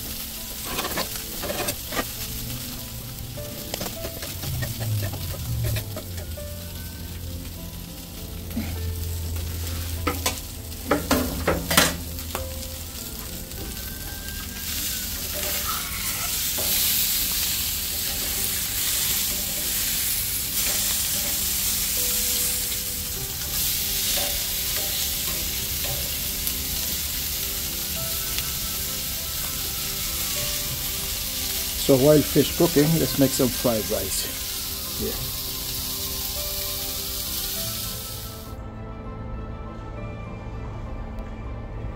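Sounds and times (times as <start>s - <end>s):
fish sizzling on a grill: 0.0s - 38.6s
metal tongs clacking: 0.5s - 2.3s, 3.6s - 6.4s, 23.5s - 26.2s.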